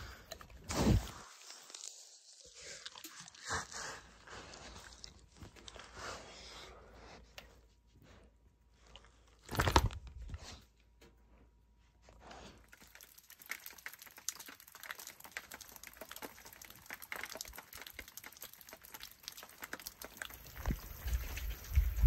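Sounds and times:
light rain pattering: 0:12.6 - 0:22.0
wind buffeting microphone: 0:20.5 - 0:22.0.

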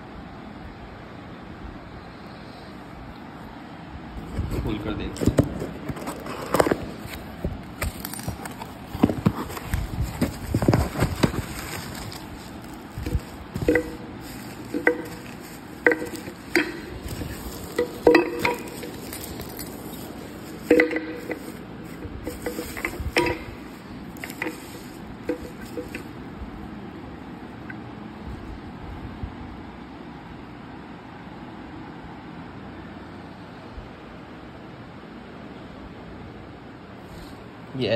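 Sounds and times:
cardboard box knocks and rustling: 0:05.2 - 0:19.3
bubble wrap crinkling: 0:05.5 - 0:26.2
light clinks: 0:11.9 - 0:21.6.

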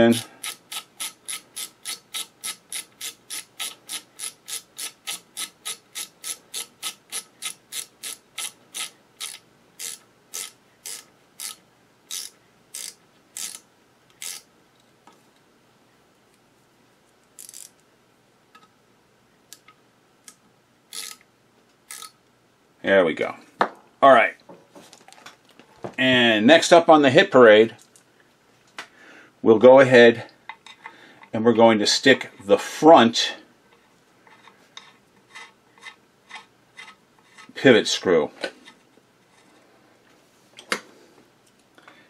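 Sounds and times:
ratcheting screwdriver clicking: 0:00.1 - 0:14.4.

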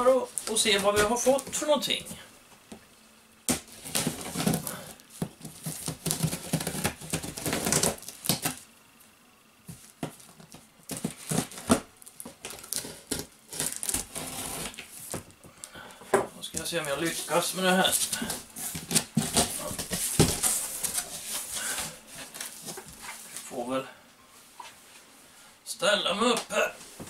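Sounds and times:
scissors slitting packing tape: 0:05.7 - 0:08.6, 0:12.4 - 0:14.8.

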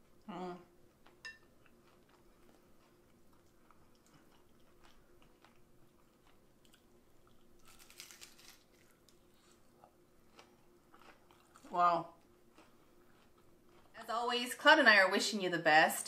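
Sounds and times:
person chewing meat: 0:00.9 - 0:11.7, 0:12.4 - 0:14.0.

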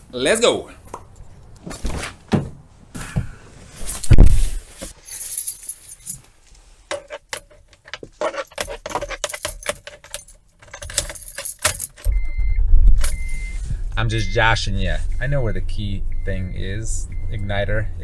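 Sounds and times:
car keys jangling: 0:05.0 - 0:06.3, 0:06.9 - 0:12.2, 0:13.0 - 0:14.4.

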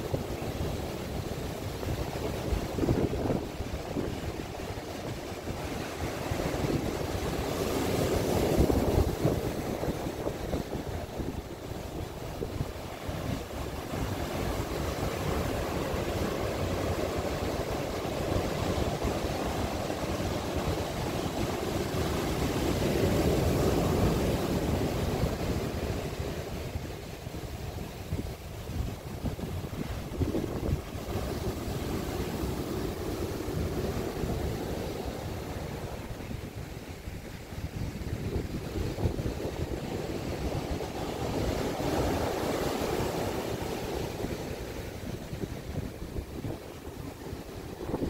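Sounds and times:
ocean surf breaking on beach: 0:00.0 - 0:48.0.

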